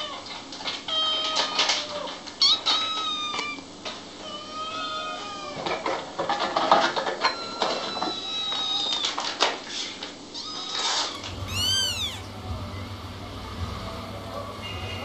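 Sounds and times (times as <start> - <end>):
kitten meowing: 10.4 - 12.3
kittens mewing: 10.4 - 12.4.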